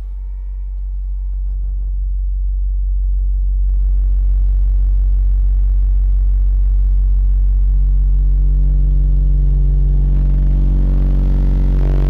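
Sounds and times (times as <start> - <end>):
subwoofer low test tone: 0.0 - 12.0
buzzing: 5.2 - 12.0.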